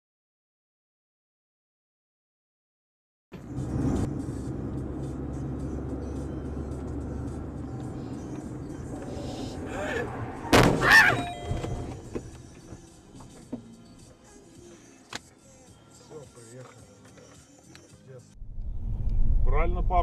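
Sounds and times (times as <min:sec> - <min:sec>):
in-car road and engine noise: 0:03.4 - 0:20.0
short shrill cry: 0:09.7 - 0:11.8
loud collision bang: 0:10.3 - 0:12.1.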